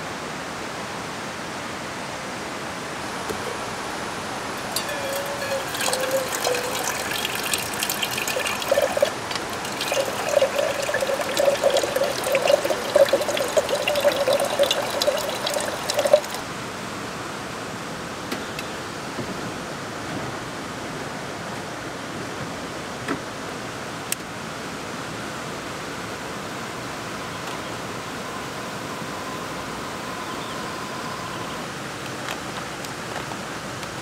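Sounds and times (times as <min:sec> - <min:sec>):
mountain stream rushing: 0:00.0 - 0:34.0
water trickling into metal pot: 0:04.6 - 0:16.4.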